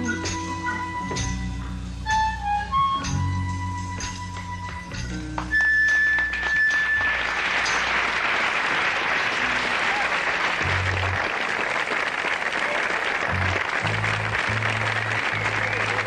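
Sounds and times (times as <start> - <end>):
low bass notes: 0.0 - 5.5, 10.6 - 11.2, 13.3 - 16.0
audience applauding: 5.2 - 16.0.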